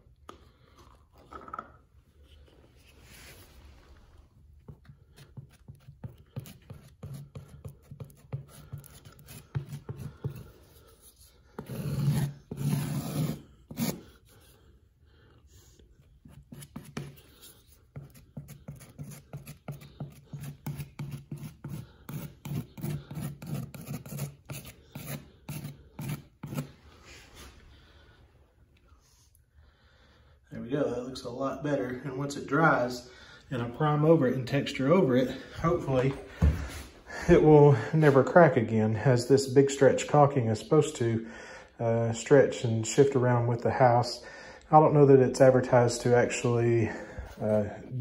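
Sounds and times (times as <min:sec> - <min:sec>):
putty knife scraping wall: 0:04.7 - 0:14.6, 0:16.2 - 0:26.8.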